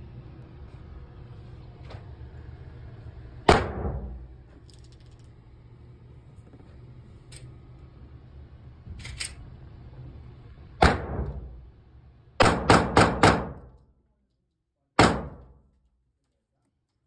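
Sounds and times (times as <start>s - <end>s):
gunshots echoing indoors: 10.8s - 11.5s, 12.4s - 13.8s, 15.0s - 15.6s.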